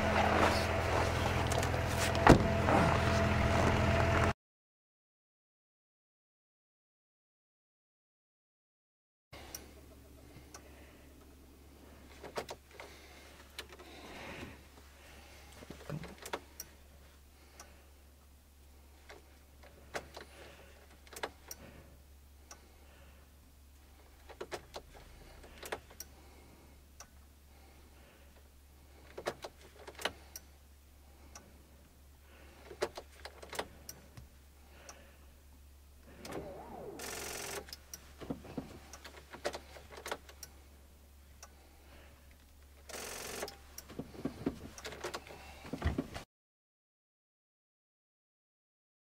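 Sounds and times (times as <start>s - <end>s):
weak electric starter whirs: 36.2s - 38.0s.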